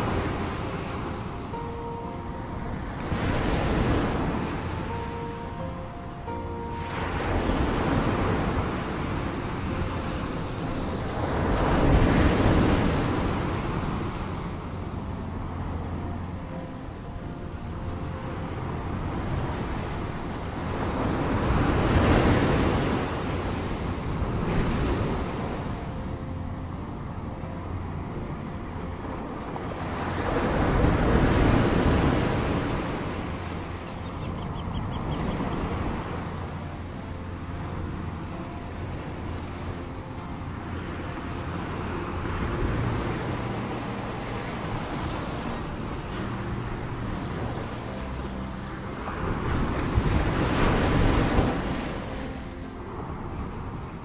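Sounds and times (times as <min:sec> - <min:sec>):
surf washing over rocks: 0:00.0 - 0:54.0.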